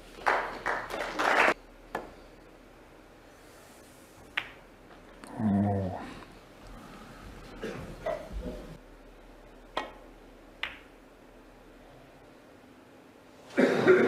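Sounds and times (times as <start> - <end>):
snooker balls clicking: 4.3 - 5.3, 9.7 - 10.9.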